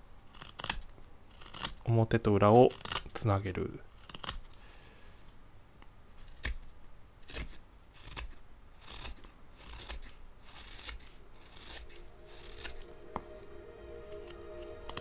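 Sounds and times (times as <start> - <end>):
knife slicing wood: 7.3 - 13.3.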